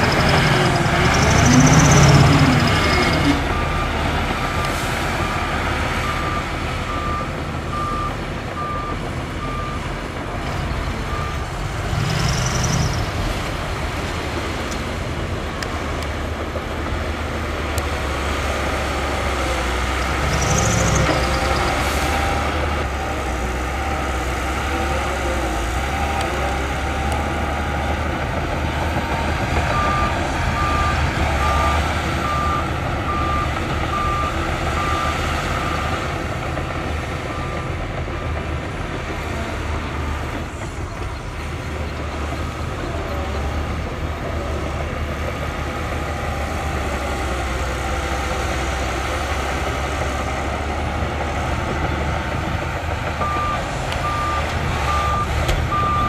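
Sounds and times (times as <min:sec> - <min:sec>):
reversing alarm beeping: 0:00.0 - 0:05.3, 0:06.0 - 0:09.9, 0:29.7 - 0:36.1, 0:53.2 - 0:56.0
heavy machine engine running: 0:00.0 - 0:56.0.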